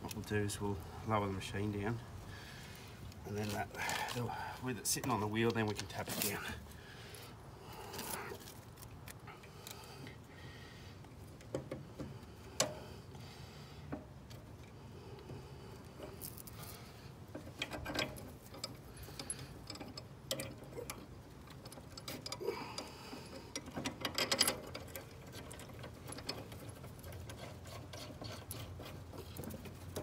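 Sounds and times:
metallic clicks and rattles: 0:16.0 - 0:30.0.

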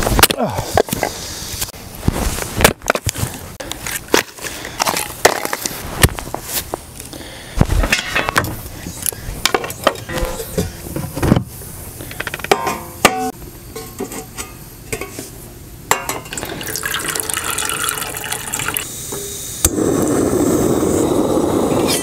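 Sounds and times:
gas burner hissing: 0:00.0 - 0:02.0, 0:16.6 - 0:22.0
water running into tin: 0:16.3 - 0:18.8.

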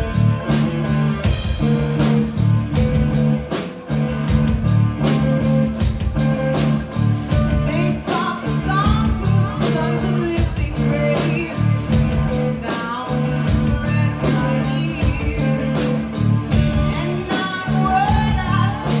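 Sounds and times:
bass line: 0:00.0 - 0:19.0
drum kit beat: 0:00.0 - 0:19.0
electric guitars: 0:00.0 - 0:19.0
woman singing: 0:07.4 - 0:19.0.

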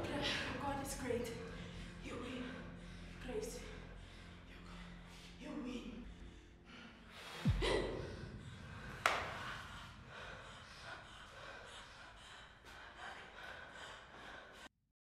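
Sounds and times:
heavy low thump: 0:07.4 - 0:09.8.

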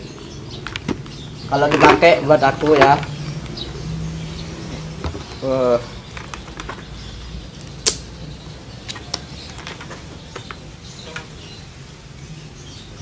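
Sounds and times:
helmet clicks and knocks: 0:00.6 - 0:03.5.

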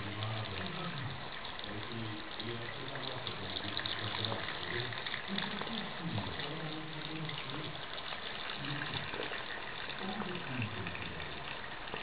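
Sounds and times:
low voice talking: 0:00.0 - 0:07.8, 0:10.0 - 0:11.5
tap running into sink: 0:10.0 - 0:12.0.

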